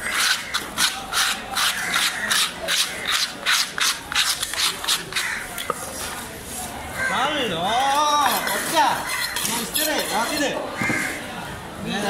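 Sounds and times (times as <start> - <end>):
knife rasping on hard surface: 0.0 - 5.9, 8.2 - 10.5.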